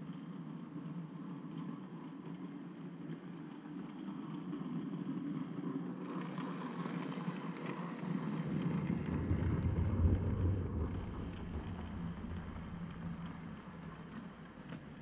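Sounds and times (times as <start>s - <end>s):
model train wheels rumbling on rails: 4.7s - 15.0s
steady motor hum: 5.2s - 15.0s.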